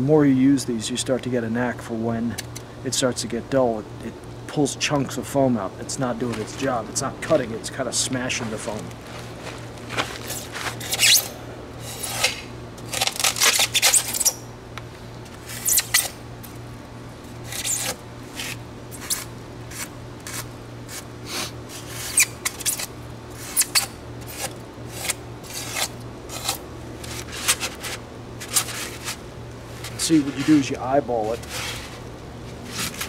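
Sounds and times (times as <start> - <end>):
knife slicing styrofoam: 17.4 - 29.2.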